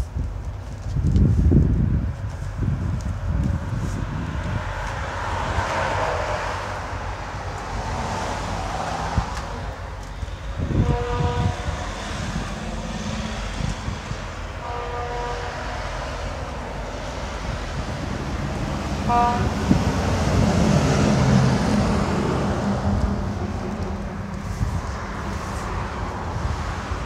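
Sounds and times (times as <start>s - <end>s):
road traffic passing: 0.0s - 27.0s
vehicle engine passing: 17.0s - 27.0s
short vehicle horn toots: 19.1s - 19.5s.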